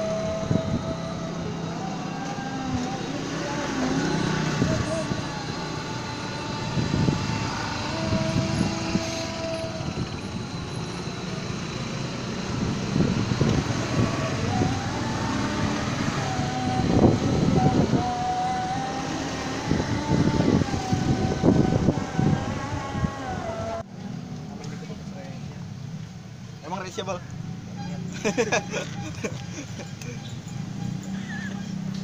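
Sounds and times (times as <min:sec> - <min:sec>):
motor vehicle rumble with whine: 0:00.0 - 0:32.0.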